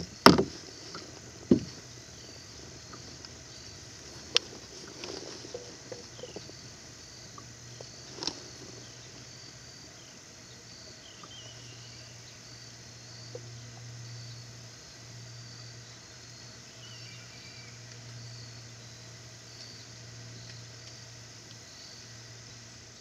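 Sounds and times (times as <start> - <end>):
insects chirping: 0.0 - 23.0
low steady hum: 0.0 - 23.0
wavering bird calls: 2.0 - 6.6.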